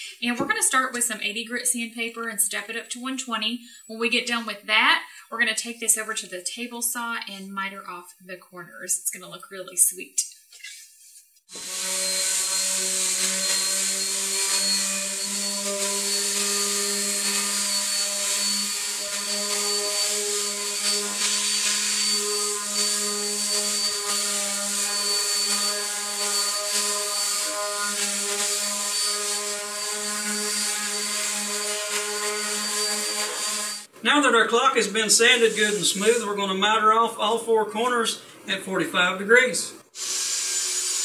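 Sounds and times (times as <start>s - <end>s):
sandpaper hissing on wood: 10.8s - 33.9s, 35.1s - 36.4s
orbital sander motor hum: 11.5s - 33.9s, 40.0s - 41.0s.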